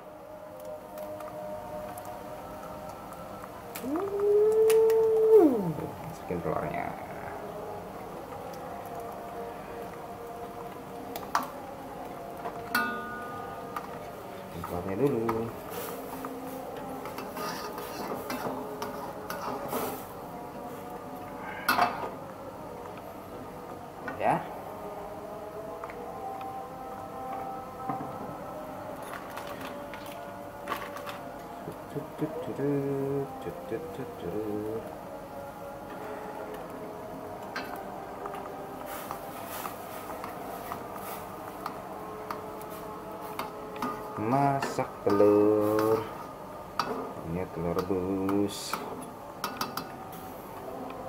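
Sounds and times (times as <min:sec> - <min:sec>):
boiling water: 0:00.0 - 0:27.9, 0:28.8 - 0:51.0
metal spatula scraping a wok: 0:17.2 - 0:20.1.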